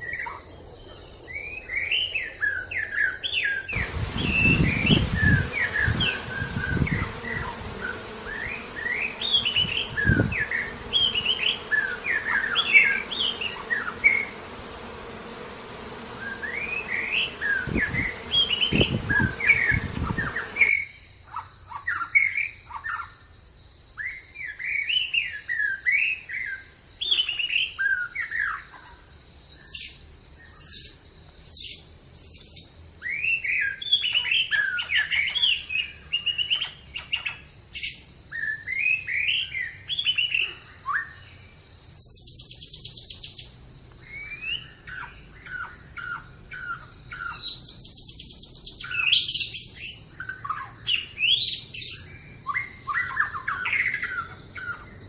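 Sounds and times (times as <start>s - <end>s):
songbirds chirping and whistling: 0.0s - 23.3s, 24.0s - 55.0s
steady high-pitched hum: 3.8s - 20.8s.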